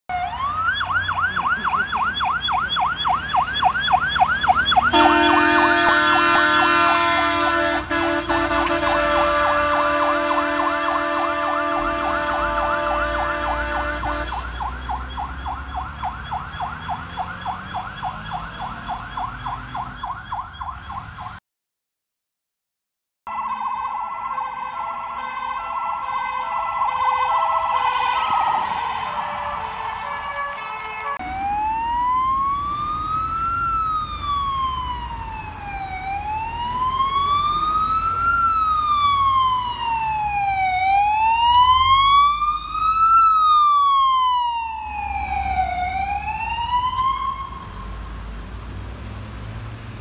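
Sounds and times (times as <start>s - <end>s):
fire engine siren wailing: 0.1s - 21.4s, 23.3s - 50.0s
long steady horn: 4.9s - 14.5s, 23.3s - 31.2s.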